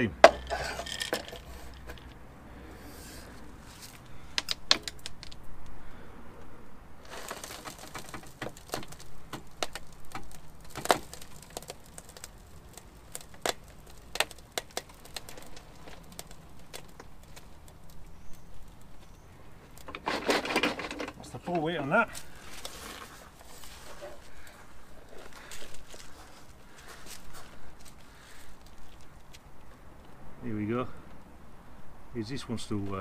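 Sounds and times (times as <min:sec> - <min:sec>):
sharp clicks and cracks: 0:03.8 - 0:05.7, 0:07.1 - 0:24.6
plastic crunching: 0:07.0 - 0:29.4.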